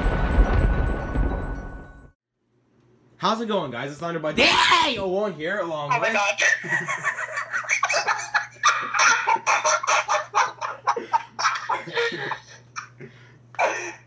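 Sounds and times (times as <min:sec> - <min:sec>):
people laughing uncontrollably: 0:06.4 - 0:14.0.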